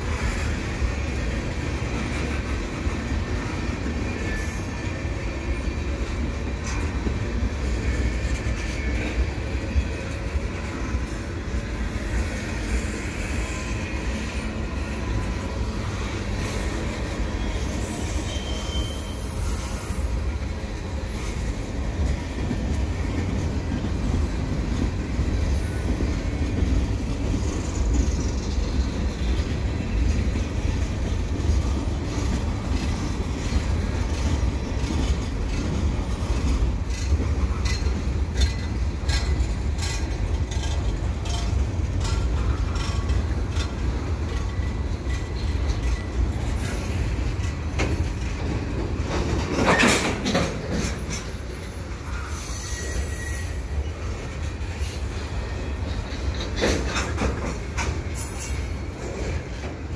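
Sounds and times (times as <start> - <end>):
freight train rumble: 0.0 - 59.9
wheels clicking over rail joints: 20.2 - 59.9.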